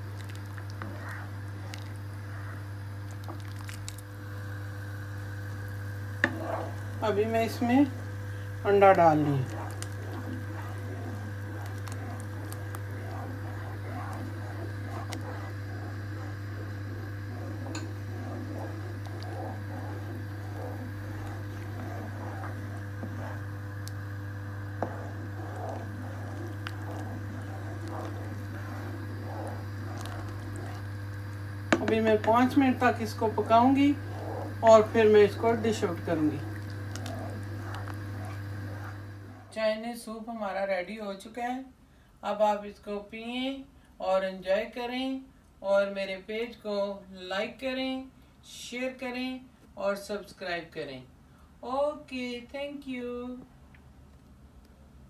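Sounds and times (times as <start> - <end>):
ladle stirring soup: 0.0 - 39.5
soup simmering in a pot: 0.0 - 39.5
steady low hum: 0.0 - 40.6.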